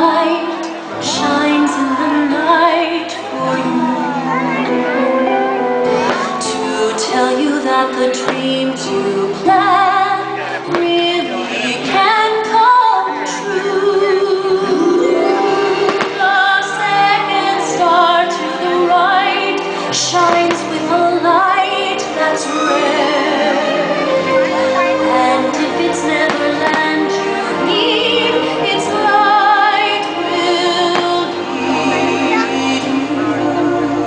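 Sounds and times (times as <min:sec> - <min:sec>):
music with woman singing: 0:00.0 - 0:34.0
fireworks bangs: 0:15.8 - 0:16.3.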